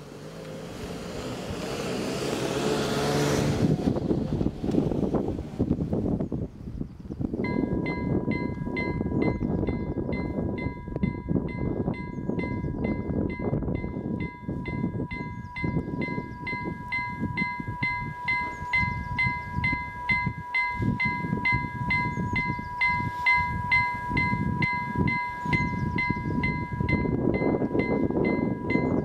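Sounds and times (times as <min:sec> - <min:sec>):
warning bell ringing: 0:07.4 - 0:29.0.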